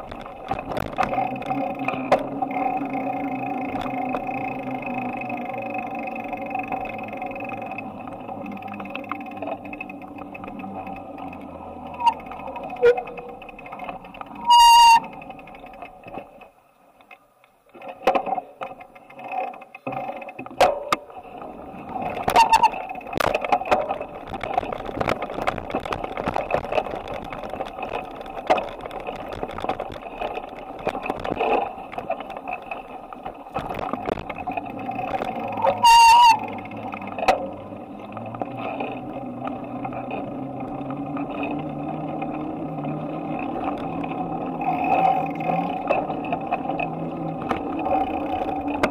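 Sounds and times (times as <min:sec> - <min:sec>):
bicycle rattling and rolling: 0:00.0 - 0:48.9
small clicks and knocks: 0:00.0 - 0:48.9
high-pitched squeal: 0:11.9 - 0:13.4, 0:14.4 - 0:15.2, 0:22.3 - 0:22.9, 0:35.4 - 0:36.7.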